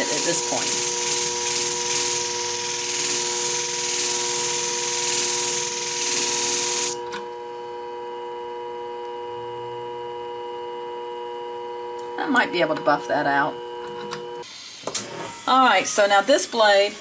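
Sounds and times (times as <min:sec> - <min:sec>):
blade grinding on disc: 0:00.0 - 0:07.0, 0:15.3 - 0:17.0
sharpening machine motor hum: 0:00.0 - 0:12.2, 0:13.3 - 0:17.0.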